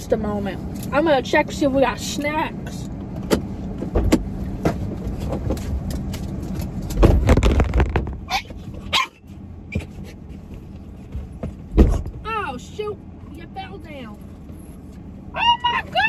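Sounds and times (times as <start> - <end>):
knocks and rustling: 3.2 - 8.3
heavy thump: 11.1 - 12.2.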